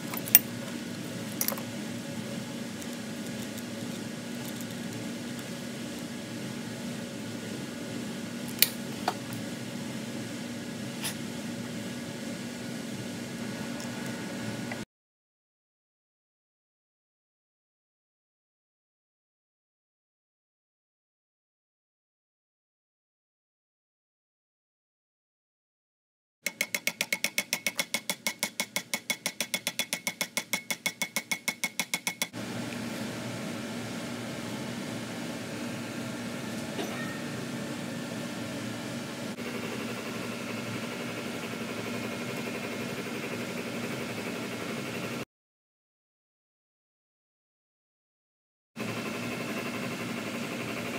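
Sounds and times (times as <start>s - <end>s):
hammer tapping on metal: 26.5s - 32.4s.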